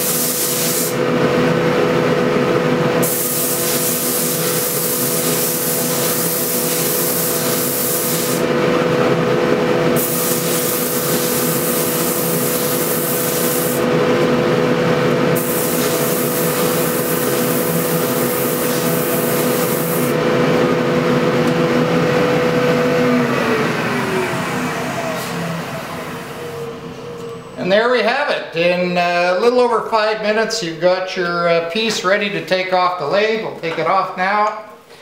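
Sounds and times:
sandpaper hissing on wood: 0.0s - 1.0s, 3.0s - 8.4s, 10.0s - 13.8s, 15.4s - 20.1s
lathe and dust collector hum: 0.0s - 27.8s.

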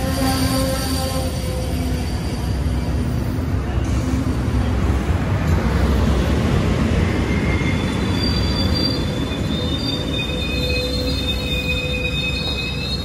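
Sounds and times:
high-pitched wheel squeals: 0.0s - 3.3s, 7.1s - 13.0s
train wheels rumbling on rail: 0.0s - 13.0s.

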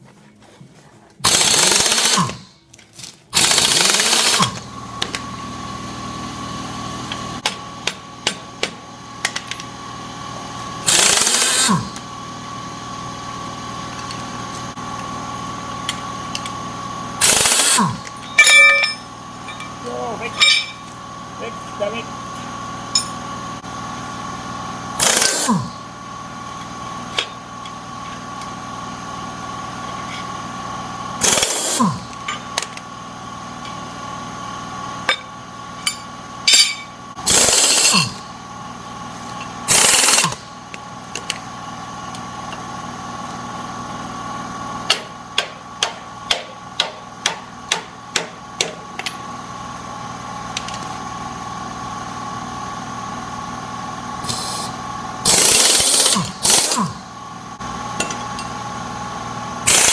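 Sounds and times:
pneumatic wrench bursts: 1.2s - 2.6s, 3.3s - 4.7s, 10.8s - 12.0s, 17.2s - 18.1s, 25.0s - 25.8s, 31.2s - 32.2s, 37.2s - 38.3s, 39.7s - 40.5s, 54.2s - 57.1s, 59.6s - 59.9s
steady hum: 4.3s - 42.6s.

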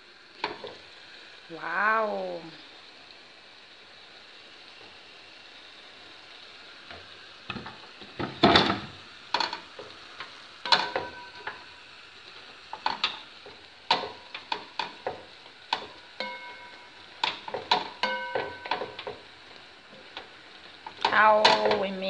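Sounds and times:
food sizzling in a pan: 0.0s - 22.0s
spatula knocking and scraping pan: 10.7s - 11.6s, 12.7s - 19.3s, 19.9s - 21.9s.

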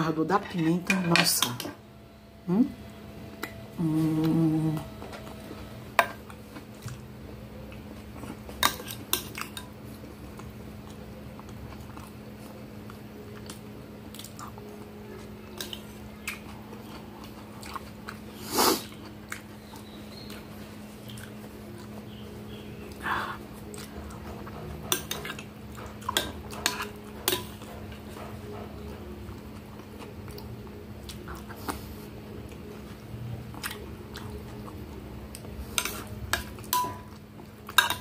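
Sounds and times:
steady low hum: 0.0s - 38.0s
person humming: 2.4s - 2.8s, 3.7s - 5.0s
chewing: 7.7s - 38.0s.

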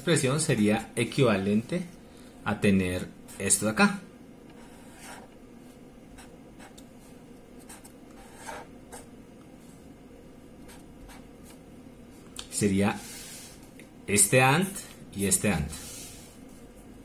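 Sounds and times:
faint room hum: 0.0s - 17.0s
pen scratching on paper: 4.5s - 5.3s, 7.6s - 9.1s.

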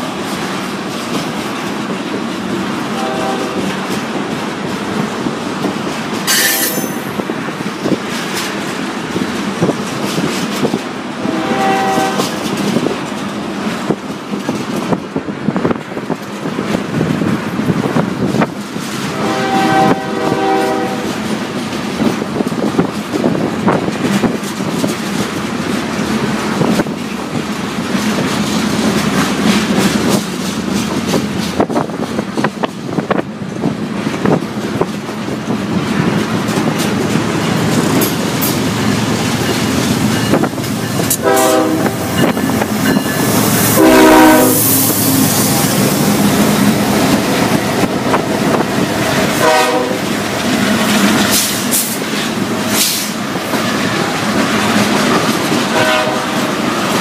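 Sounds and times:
train wheels rumbling on rails: 0.0s - 57.0s
locomotive horn blasts: 2.9s - 3.9s, 6.3s - 7.2s, 11.2s - 12.5s, 19.0s - 21.2s, 41.0s - 45.4s, 49.3s - 50.2s, 55.7s - 56.5s.

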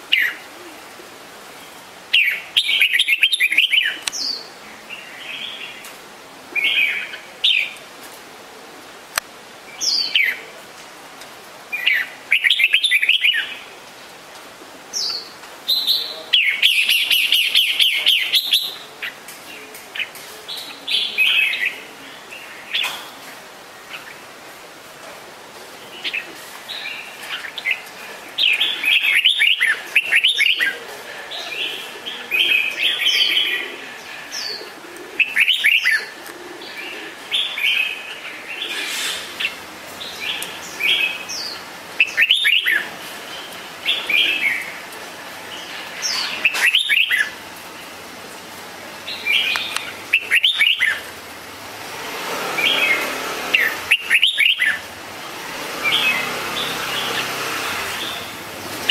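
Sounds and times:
bird singing whistled phrases: 46.4s - 47.3s, 50.2s - 51.0s, 53.9s - 54.8s.

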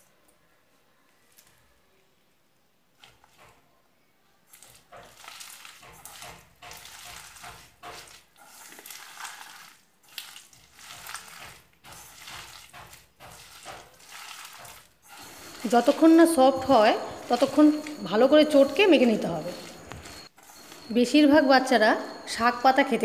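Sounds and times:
hands squelching wet batter: 4.5s - 20.8s.

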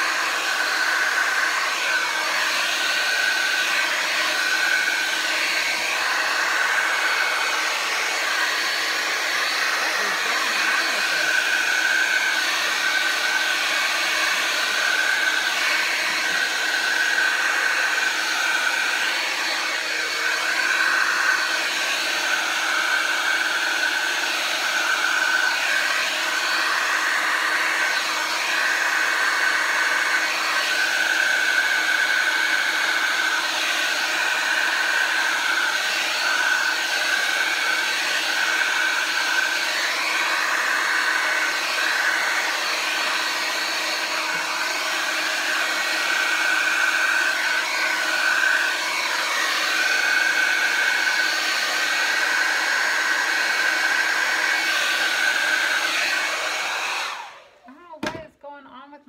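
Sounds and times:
blow dryer whining: 0.0s - 58.6s.

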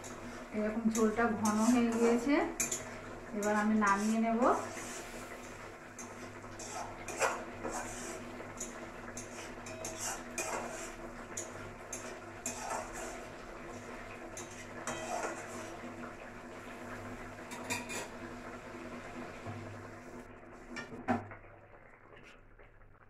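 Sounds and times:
spatula scraping metal pan: 0.0s - 15.9s.

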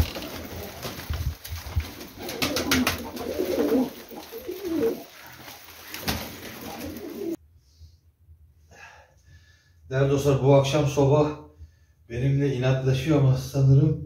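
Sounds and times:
pigeon cooing: 2.1s - 7.4s.

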